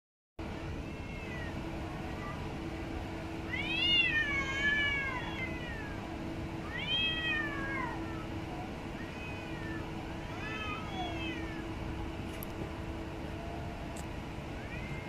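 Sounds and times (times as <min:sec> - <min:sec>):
cat yowling: 0:00.8 - 0:02.4, 0:03.5 - 0:11.8, 0:14.6 - 0:15.0.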